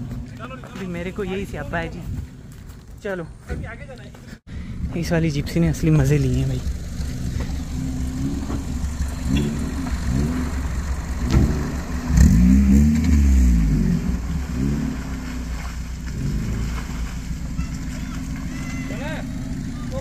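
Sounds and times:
car engine revving: 5.2s - 20.0s.

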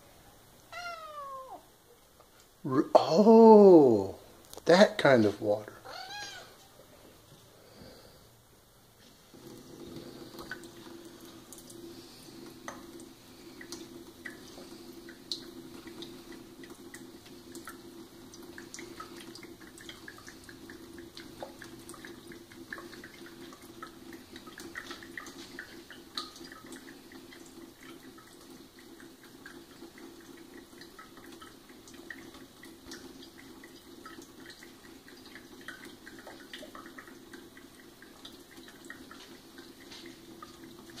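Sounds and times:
cat lapping water: 9.0s - 41.0s
tap water running into sink: 9.0s - 41.0s.

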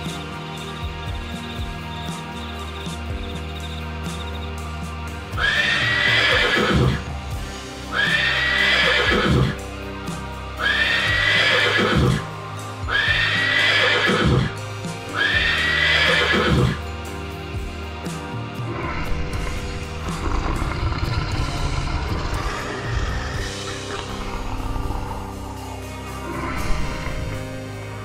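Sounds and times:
background music: 0.0s - 28.0s
horse neighing: 5.4s - 7.1s, 7.9s - 9.6s, 10.6s - 12.3s, 12.9s - 16.8s, 18.7s - 27.4s.

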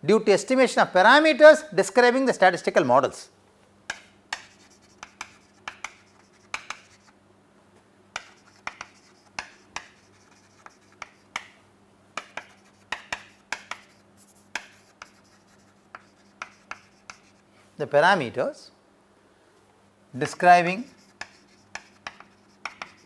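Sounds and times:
chalk writing on chalkboard: 3.9s - 7.2s, 8.2s - 11.6s, 12.2s - 17.5s, 20.6s - 23.0s.

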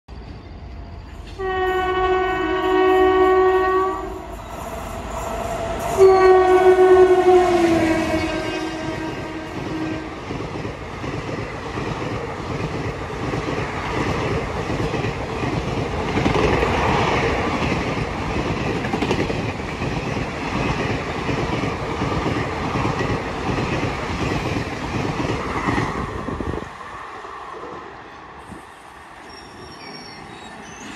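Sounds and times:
train rushing noise: 0.1s - 30.9s
train wheels clattering on rails: 9.5s - 26.3s.

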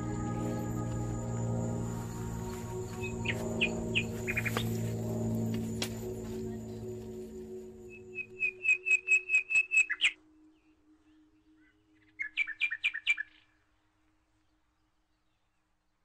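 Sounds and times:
bird whistling song: 2.9s - 4.7s, 7.9s - 13.6s.

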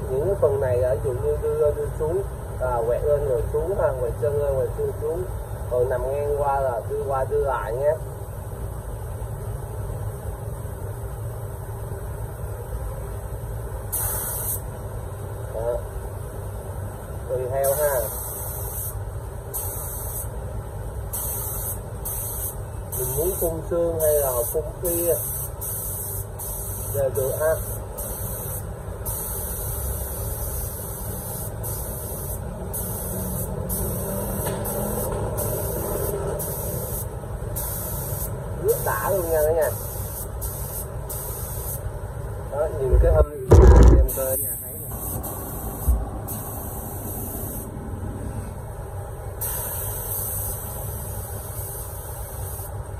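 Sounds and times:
spray gun hissing: 13.9s - 14.7s, 17.6s - 20.4s, 21.1s - 41.9s, 44.1s - 47.7s, 49.4s - 52.9s
steady low rumble: 42.5s - 49.3s.

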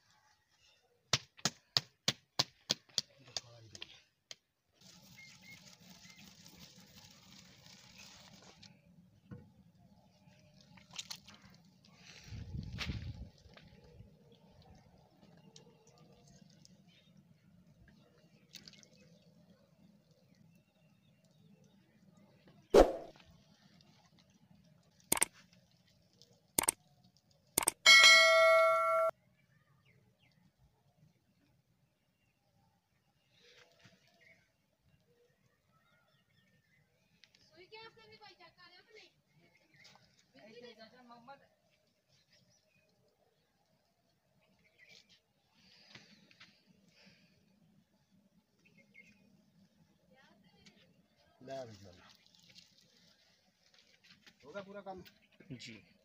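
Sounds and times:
bell ding: 27.9s - 29.1s.

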